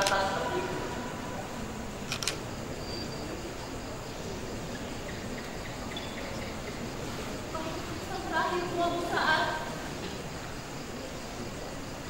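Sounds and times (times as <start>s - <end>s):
dialogue: 0.0s - 10.8s
hall and recording hiss: 0.0s - 12.0s
faint high chirps: 2.8s - 3.7s.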